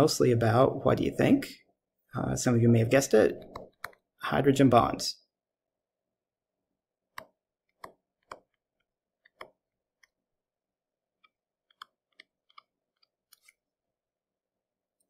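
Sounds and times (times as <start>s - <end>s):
stylus tapping on a tablet: 7.1s - 8.6s.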